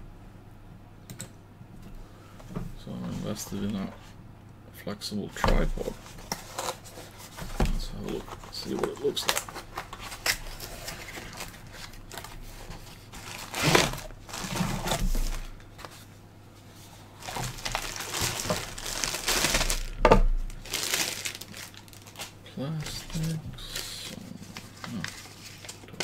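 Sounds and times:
cardboard packaging rustling: 0:05.6 - 0:16.1, 0:16.8 - 0:26.0
plastic bag crinkling: 0:07.9 - 0:15.6, 0:17.1 - 0:26.0.

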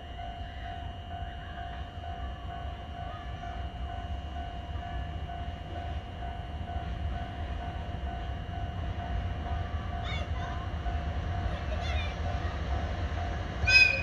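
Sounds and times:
faint pulsing high tone: 0:00.0 - 0:10.0
train low rumble: 0:00.0 - 0:14.0.

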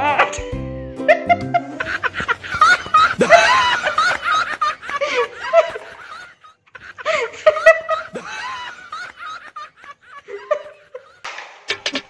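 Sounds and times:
child giggling: 0:01.1 - 0:11.1.

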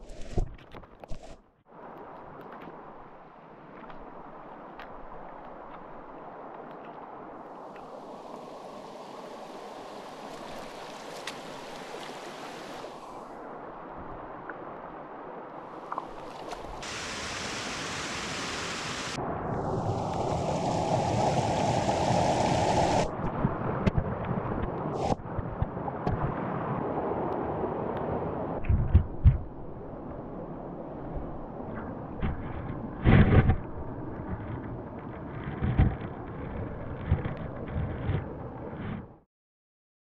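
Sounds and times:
creek water rushing over rocks: 0:01.7 - 0:19.2, 0:19.8 - 0:23.1.

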